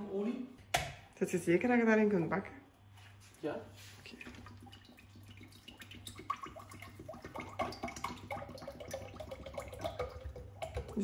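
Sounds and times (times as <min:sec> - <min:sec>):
oil glugging from bottle: 0:04.1 - 0:11.0.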